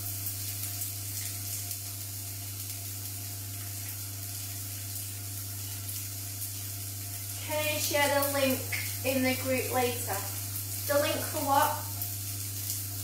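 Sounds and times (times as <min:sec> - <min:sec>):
tofu sizzling in a pan: 0:00.0 - 0:13.0.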